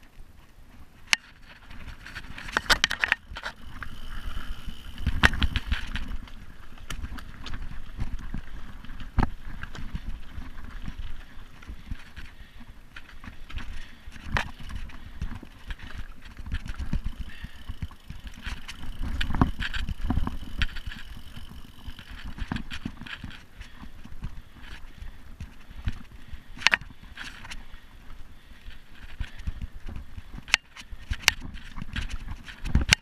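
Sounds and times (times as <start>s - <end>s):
bike tyres rumbling on dirt: 0.3s - 33.0s
bike frame knocks and rattles: 1.0s - 6.3s, 12.9s - 23.4s, 30.0s - 33.0s.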